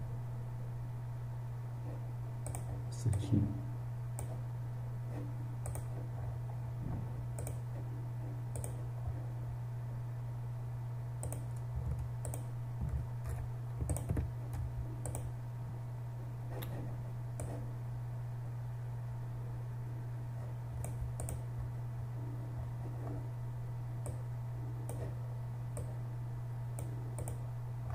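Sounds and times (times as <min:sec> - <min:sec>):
steady low hum: 0:00.0 - 0:27.9.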